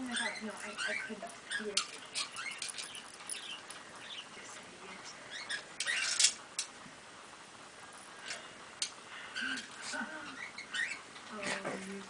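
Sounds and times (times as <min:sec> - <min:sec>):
dogs squeaking and chirping: 0:00.0 - 0:04.4, 0:05.3 - 0:06.5, 0:09.4 - 0:11.4.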